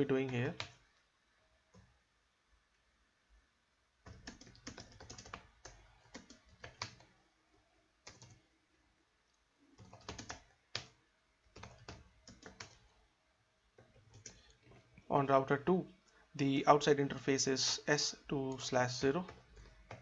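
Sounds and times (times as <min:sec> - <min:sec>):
computer keyboard typing: 0:00.5 - 0:00.8, 0:04.0 - 0:07.2, 0:08.0 - 0:08.4, 0:09.8 - 0:12.9, 0:13.8 - 0:14.9, 0:18.5 - 0:20.0.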